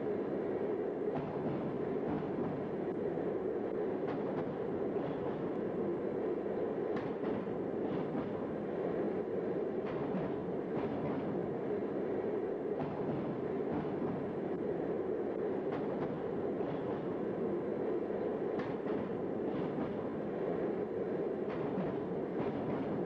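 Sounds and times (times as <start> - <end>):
train rumbling in tunnel: 0.0 - 23.0.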